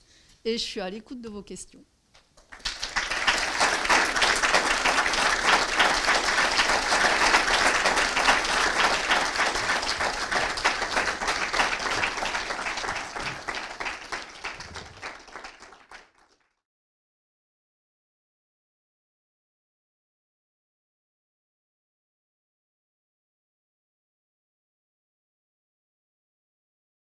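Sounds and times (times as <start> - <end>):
audience applauding: 2.4 - 16.6.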